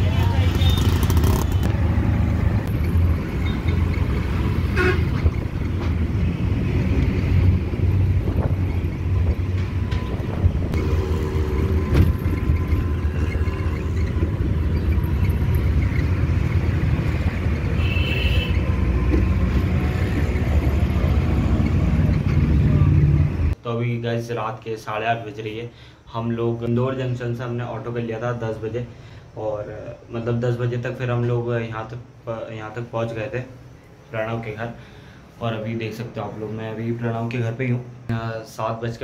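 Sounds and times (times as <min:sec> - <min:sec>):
auto rickshaw engine running: 0:00.0 - 0:04.9, 0:10.7 - 0:23.5
vehicle horns honking: 0:04.6 - 0:05.4, 0:17.6 - 0:18.9.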